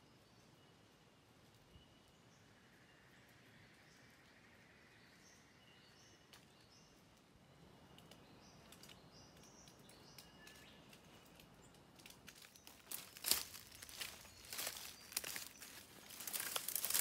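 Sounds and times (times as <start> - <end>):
small bird chirping: 7.9 - 17.0
undergrowth crackling and rustling: 7.9 - 17.0.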